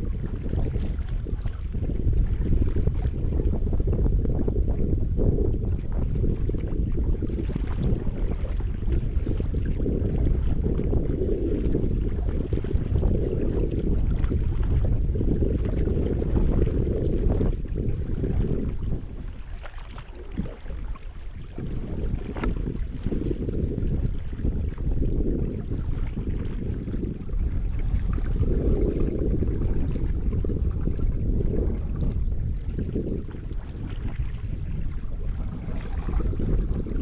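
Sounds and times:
wind rumble on microphone: 0.0s - 37.0s
kayak paddle strokes: 5.8s - 26.6s
water splashing: 15.6s - 24.8s.

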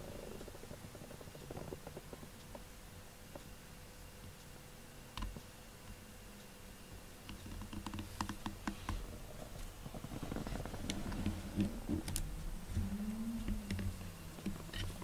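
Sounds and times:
low uneven rumble: 8.9s - 15.0s.

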